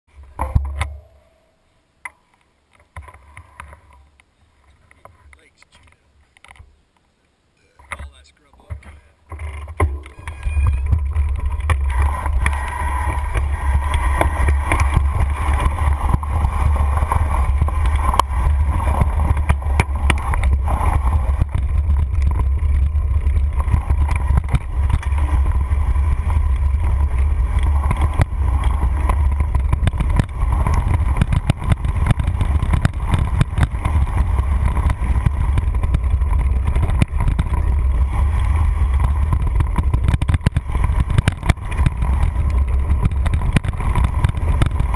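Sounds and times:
bike rattling and knocking: 0.2 - 1.2, 7.8 - 44.9
wind rumble on microphone: 9.3 - 44.9.

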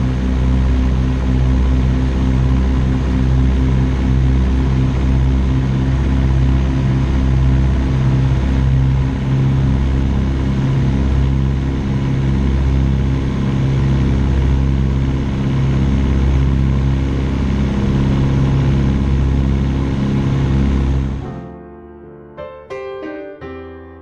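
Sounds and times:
aircraft engines droning: 0.0 - 21.5.

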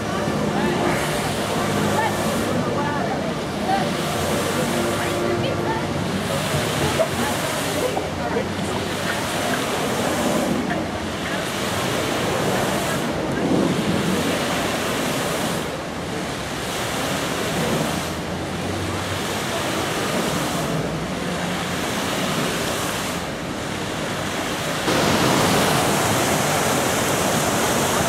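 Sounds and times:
fountain jets splashing into pool: 0.0 - 28.0.

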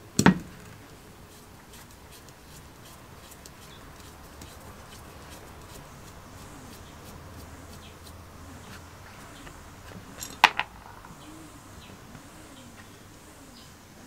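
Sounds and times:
faint bird chirps: 5.9 - 13.9.

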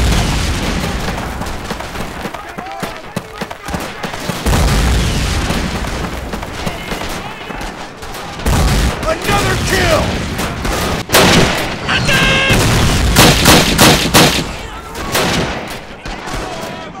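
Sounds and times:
rifle and machine-gun fire: 0.0 - 16.8
people shouting: 2.2 - 4.3, 6.6 - 10.0, 11.9 - 12.6, 15.9 - 17.0.

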